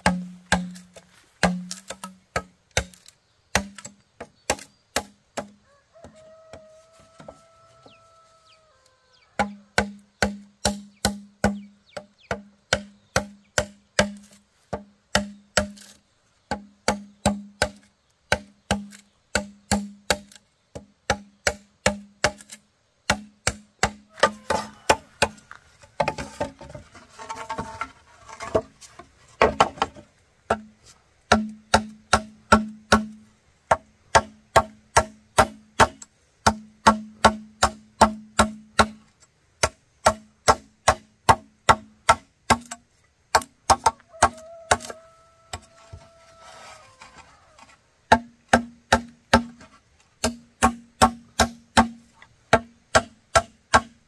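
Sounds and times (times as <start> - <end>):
blade striking bamboo: 0.0 - 5.6, 12.3 - 20.4, 21.1 - 26.8, 31.3 - 45.0, 48.1 - 54.0.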